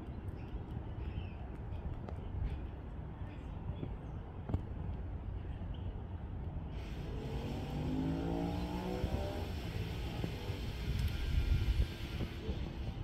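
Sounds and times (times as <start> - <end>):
vehicle engine accelerating: 6.8 - 13.0.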